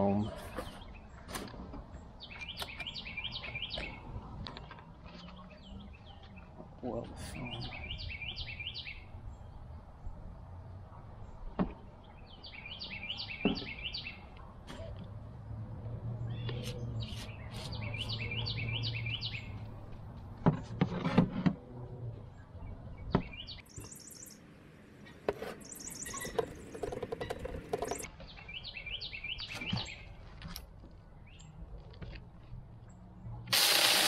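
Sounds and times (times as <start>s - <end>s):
songbird chirping: 0.0s - 33.4s.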